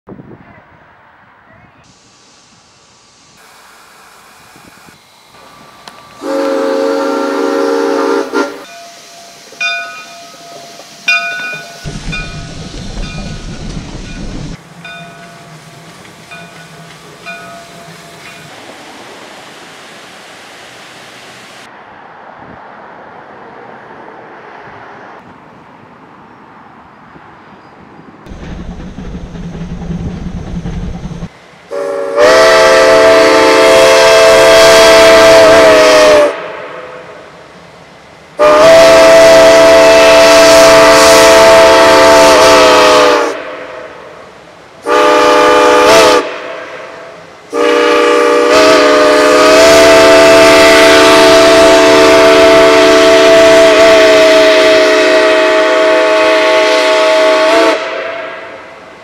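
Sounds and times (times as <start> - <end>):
low rumble of train running: 0.1 - 59.0
steam locomotive whistle blasts: 5.4 - 12.5, 31.7 - 37.2, 38.4 - 44.1, 44.8 - 58.7.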